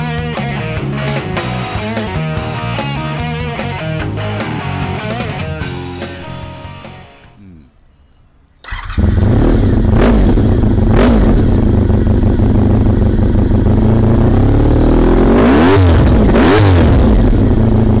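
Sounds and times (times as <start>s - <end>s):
motorcycle engine idling and revving: 8.7s - 18.0s.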